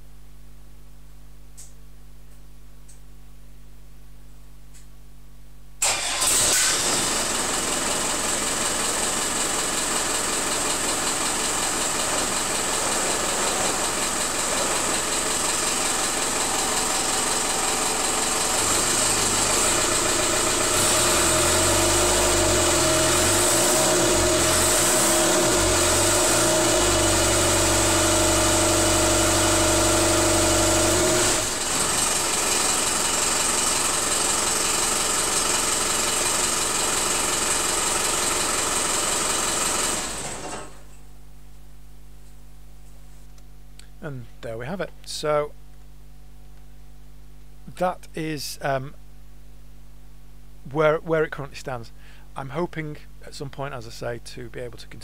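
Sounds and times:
diesel engine running: 5.8 - 41.0.

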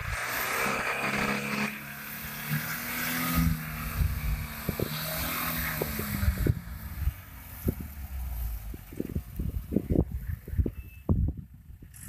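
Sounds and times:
vehicle engine under load: 0.0 - 12.0
sharp low thumps: 3.3 - 11.9.

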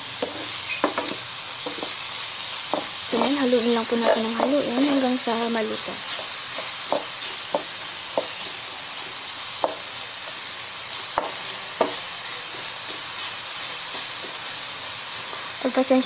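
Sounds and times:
onions sizzling in oil: 0.0 - 16.0
wooden spatula knocking against pan: 0.2 - 1.9, 2.7 - 3.4, 4.0 - 5.0, 6.2 - 8.4, 11.2 - 13.0.

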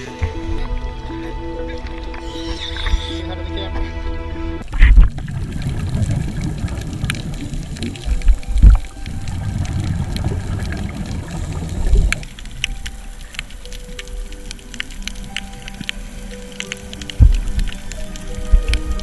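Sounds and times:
underwater regulator bubbles: 4.6 - 12.8.

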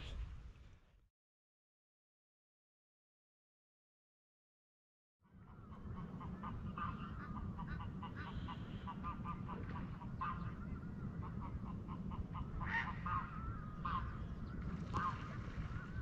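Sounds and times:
birds calling: 5.3 - 16.0.

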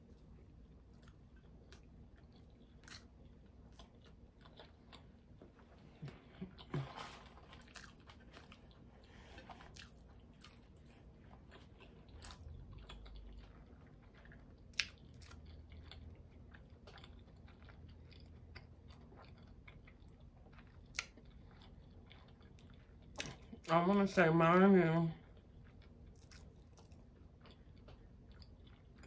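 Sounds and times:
person chewing fries: 0.0 - 23.7, 25.2 - 29.0.

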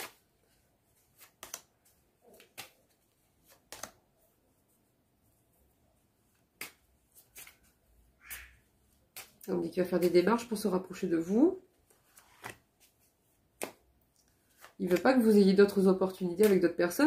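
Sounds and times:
playing cards shuffled by hand: 0.0 - 4.2, 6.3 - 10.2, 11.8 - 15.8.

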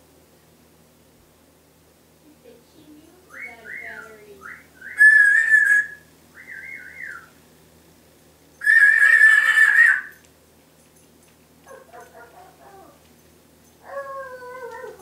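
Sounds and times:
harsh parrot calls: 3.3 - 7.4, 8.6 - 10.2
parrot whistling: 3.3 - 7.4, 8.6 - 10.1.

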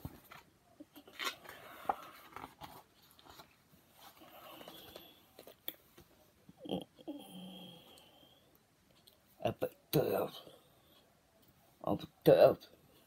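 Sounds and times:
book pages rustling: 0.0 - 6.2.

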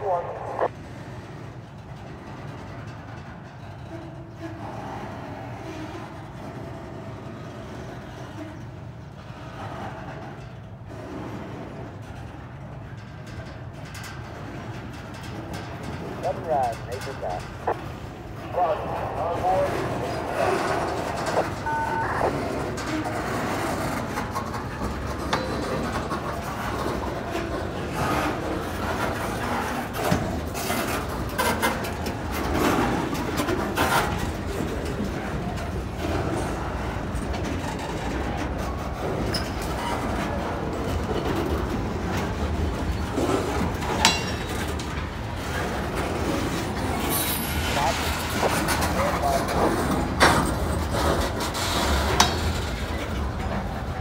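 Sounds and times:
locomotive diesel engine rumble: 0.0 - 0.7, 15.1 - 54.0
clanks and clicks from train cars: 0.0 - 54.0.

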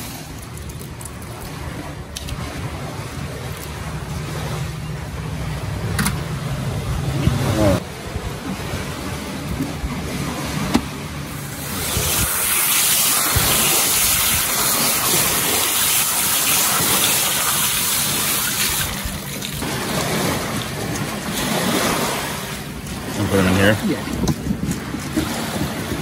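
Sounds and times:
waves washing onto gravel: 10.0 - 26.0
hose nozzle spraying water: 11.3 - 26.0.

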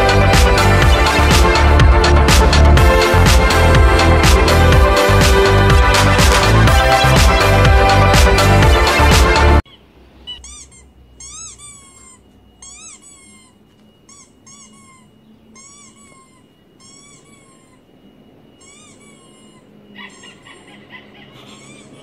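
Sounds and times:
squeaky toy squeaks from speakers: 8.4 - 22.0.

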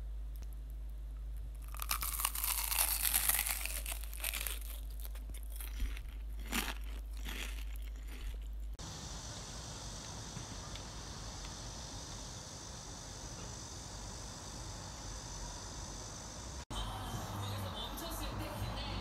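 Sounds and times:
steady low hum: 0.0 - 19.0
crisp crunching and crinkling: 1.5 - 8.8
faint hissing outdoor background: 8.7 - 19.0.

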